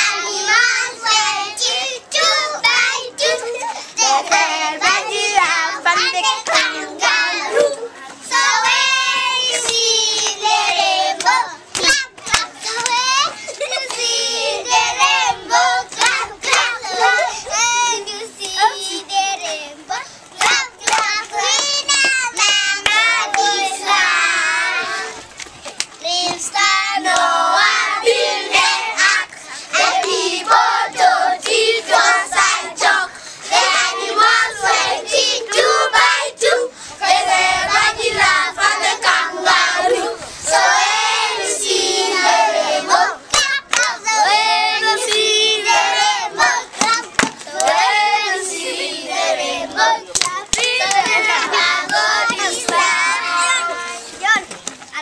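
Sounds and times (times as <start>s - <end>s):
young children singing: 0.0s - 25.2s, 26.0s - 54.4s
children clapping hands: 11.2s - 13.1s, 16.0s - 16.7s, 20.4s - 23.5s, 43.3s - 44.0s, 45.9s - 47.9s, 50.1s - 53.0s.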